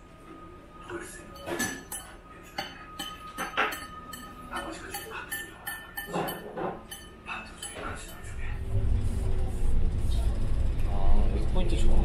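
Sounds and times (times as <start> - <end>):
low room hum: 0.0 - 12.0
cutlery and dishes clinking: 0.8 - 8.4.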